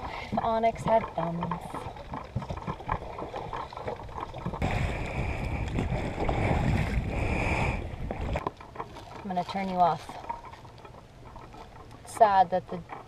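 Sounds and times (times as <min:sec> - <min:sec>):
wind on the microphone: 0:00.0 - 0:08.5
water splashing around a dinghy: 0:00.0 - 0:13.0.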